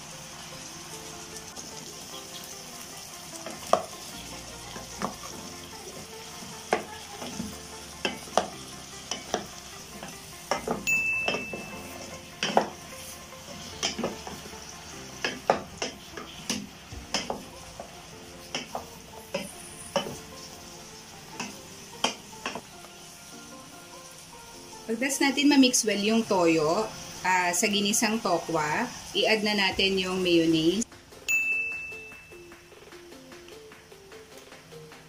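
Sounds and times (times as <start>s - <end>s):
tofu sizzling: 0.0s - 31.3s
spatula knocking and scraping pot: 4.7s - 14.6s, 15.2s - 20.5s.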